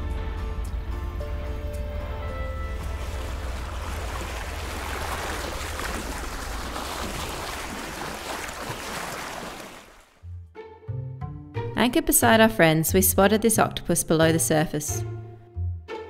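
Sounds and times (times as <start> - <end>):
background music: 0.0 - 5.5, 10.2 - 16.0
water rushing along hull: 2.3 - 10.2.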